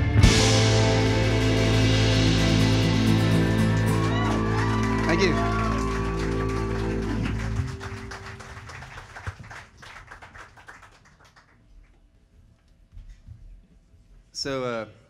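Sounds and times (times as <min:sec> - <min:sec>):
live band chord: 0:00.0 - 0:08.6
audience clapping: 0:01.5 - 0:12.0.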